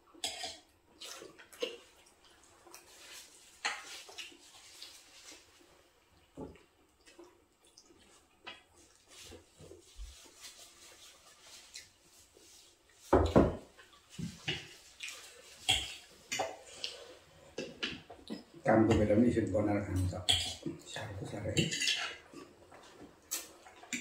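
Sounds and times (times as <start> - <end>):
chewing and slurping: 0.1 - 9.9.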